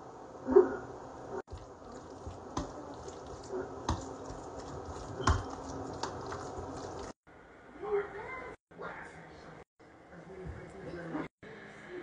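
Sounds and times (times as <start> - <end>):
fork stirring wet food: 1.5 - 7.2.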